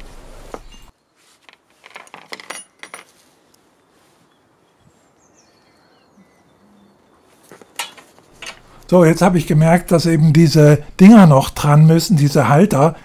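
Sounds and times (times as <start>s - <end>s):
quiet outdoor ambience: 0.0s - 13.0s
faint bird chirps: 0.6s - 1.2s, 3.7s - 7.8s.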